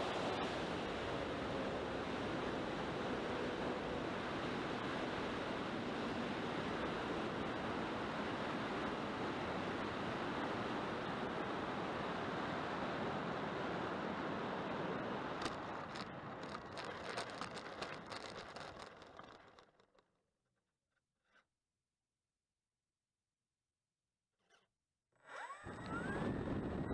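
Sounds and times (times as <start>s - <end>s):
plane knocking and rattling on grass: 15.4s - 19.9s
wind rushing over camera: 25.4s - 26.9s.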